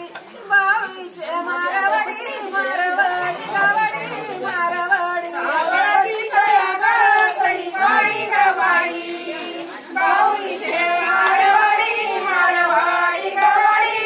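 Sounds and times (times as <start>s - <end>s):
woman singing unaccompanied: 0.0s - 14.0s.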